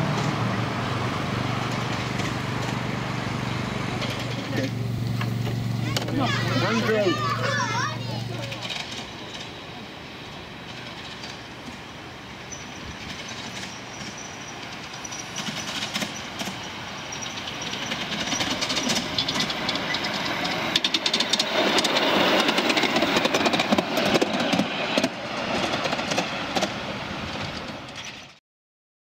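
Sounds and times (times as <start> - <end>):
miniature steam locomotive running: 0.0 - 28.4
rapid clicking of wheels: 12.5 - 26.7.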